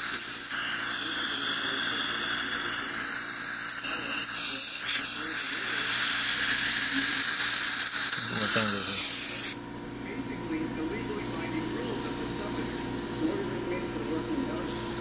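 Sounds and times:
saliva ejector hissing: 0:00.0 - 0:09.6.

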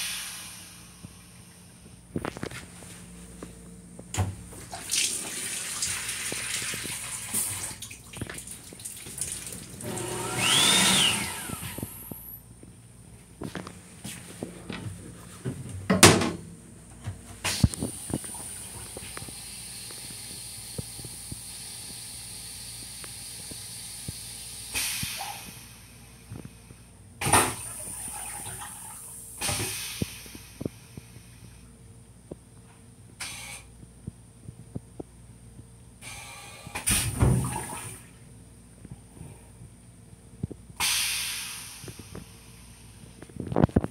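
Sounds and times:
steady hiss: 0:00.0 - 0:02.1, 0:40.8 - 0:43.2
toilet flushing: 0:04.2 - 0:12.3, 0:27.2 - 0:30.5, 0:36.0 - 0:38.2.

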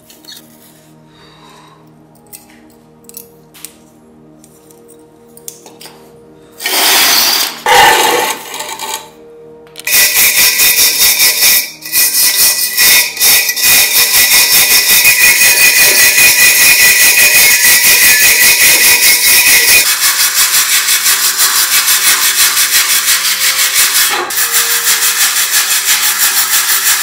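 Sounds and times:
steady high tone: 0:06.4 - 0:19.9
loud scraping noise: 0:06.6 - 0:09.2, 0:09.9 - 0:27.0
wire brush scrubbing rusty metal: 0:13.2 - 0:27.0.

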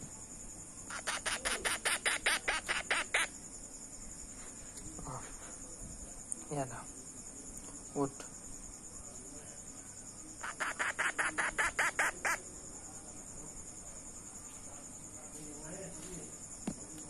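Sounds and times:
parrot chick squawking: 0:00.9 - 0:03.3, 0:10.4 - 0:12.4.

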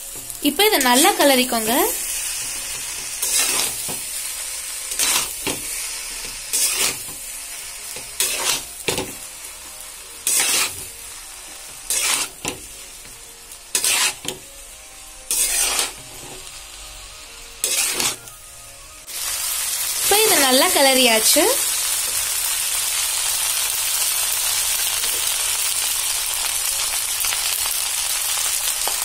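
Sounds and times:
spatula scraping frying pan: 0:02.2 - 0:04.0, 0:04.7 - 0:07.2, 0:07.9 - 0:09.2, 0:10.2 - 0:13.0, 0:13.7 - 0:14.4, 0:15.3 - 0:16.5, 0:17.6 - 0:18.3.

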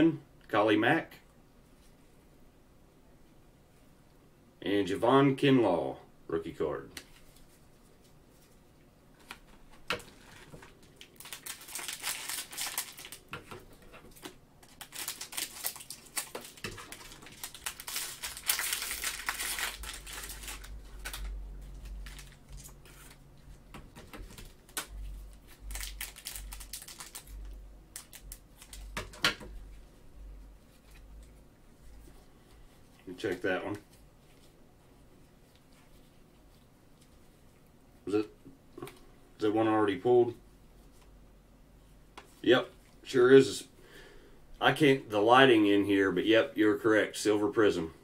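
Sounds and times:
cellophane wrapper crinkling: 0:10.0 - 0:29.8.

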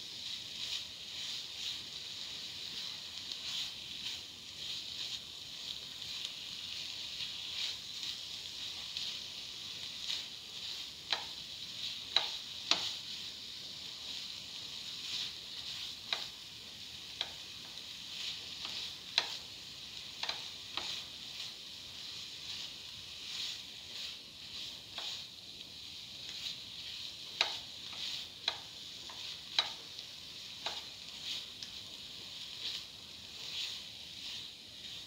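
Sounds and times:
food sizzling in frying pan: 0:00.0 - 0:35.0
spatula clicking against pan: 0:11.1 - 0:13.0, 0:16.0 - 0:16.4, 0:17.1 - 0:21.0, 0:27.3 - 0:31.8.

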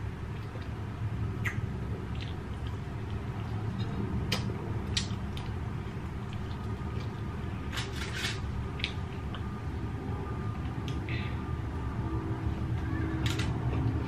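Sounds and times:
low background rumble: 0:00.0 - 0:14.0
wet chewing clicks and smacks: 0:01.4 - 0:07.2.

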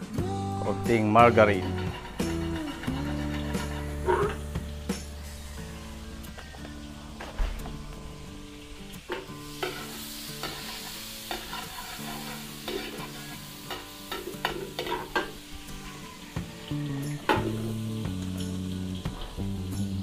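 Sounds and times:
oil sizzling in a pan: 0:00.0 - 0:20.0
utensil scraping a pan: 0:01.4 - 0:08.0, 0:08.9 - 0:16.2.

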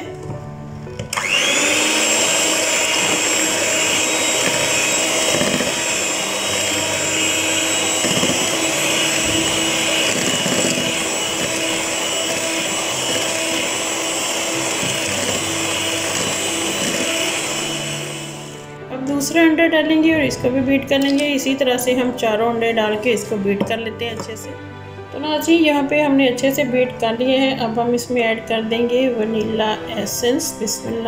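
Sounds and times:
electric hand mixer whining: 0:00.0 - 0:18.8.

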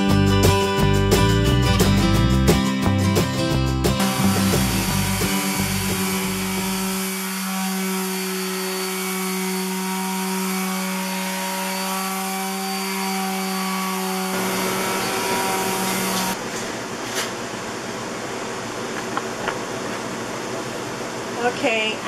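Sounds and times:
electric sander humming: 0:04.0 - 0:16.4.

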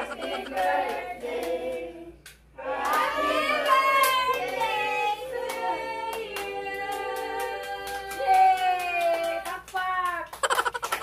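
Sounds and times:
women and children singing: 0:00.0 - 0:08.5
hand clapping: 0:00.2 - 0:04.8, 0:05.4 - 0:11.0.

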